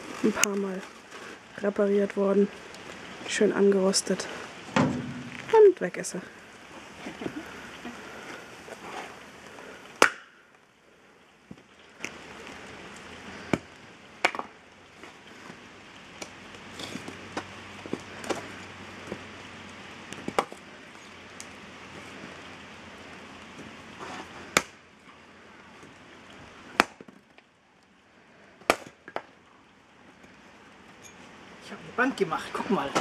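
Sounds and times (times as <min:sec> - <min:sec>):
axe chopping firewood: 0:10.0 - 0:10.3, 0:13.5 - 0:14.5, 0:16.2 - 0:18.5, 0:20.1 - 0:20.6, 0:24.5 - 0:24.8, 0:26.7 - 0:27.1, 0:28.6 - 0:29.3.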